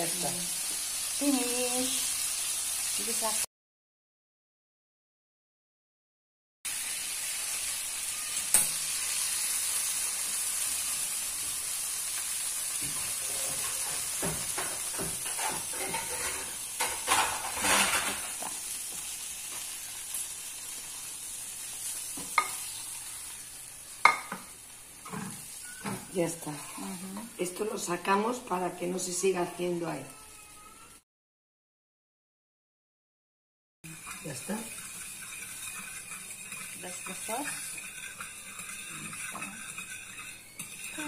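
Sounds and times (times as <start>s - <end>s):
meat sizzling in a dish: 0.0s - 3.5s, 6.7s - 31.0s, 33.8s - 41.0s
fork scraping and clicking: 33.9s - 41.0s.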